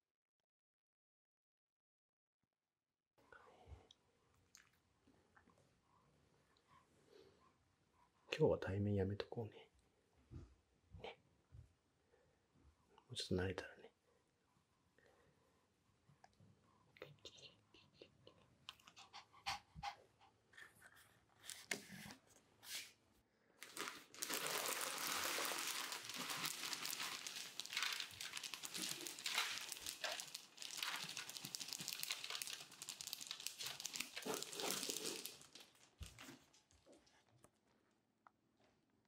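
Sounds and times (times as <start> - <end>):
litter pellets pouring rattle: 23.6 - 35.6
plastic bag crinkling: 23.6 - 36.9.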